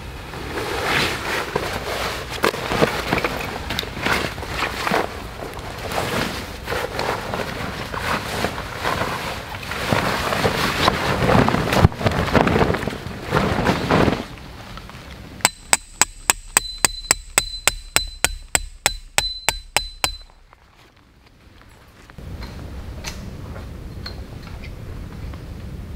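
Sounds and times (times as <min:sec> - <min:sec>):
tent fabric rustling and flapping: 0:00.2 - 0:15.4
tent peg hammered into ground: 0:15.4 - 0:20.5.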